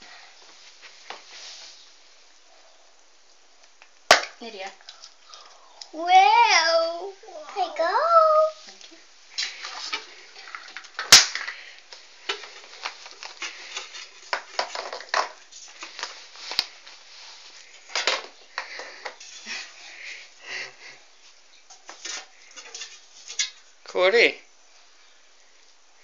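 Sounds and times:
rustling: 0:00.0 - 0:03.4, 0:04.7 - 0:20.4.

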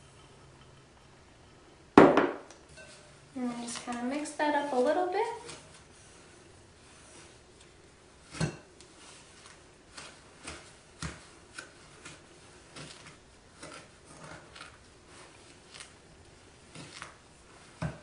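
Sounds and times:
spoon scraping a glass bowl: 0:02.7 - 0:03.2, 0:11.7 - 0:17.8.

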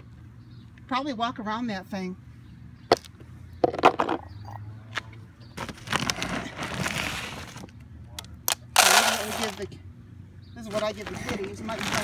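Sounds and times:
cat food rustling and scraping: 0:05.6 - 0:07.7, 0:10.7 - 0:12.0.

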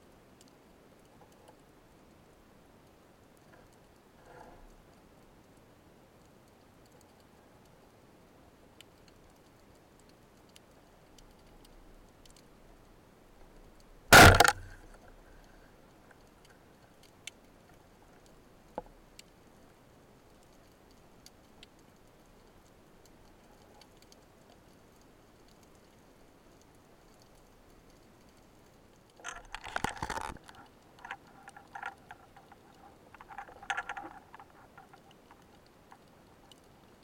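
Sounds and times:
faint clicks: 0:02.8 - 0:08.0, 0:08.7 - 0:37.0
speargun firing underwater: 0:14.1 - 0:14.8.

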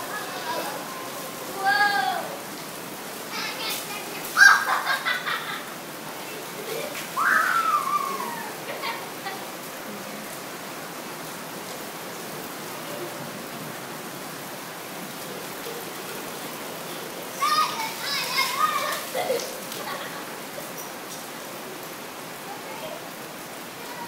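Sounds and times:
rain on brick patio: 0:00.0 - 0:24.0
high cries: 0:07.2 - 0:08.8.

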